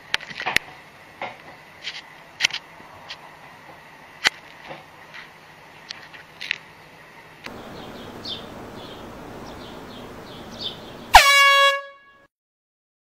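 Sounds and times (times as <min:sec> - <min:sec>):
small bird-like chirps: 0:07.5 - 0:11.1
loud horn blast: 0:07.5 - 0:12.3.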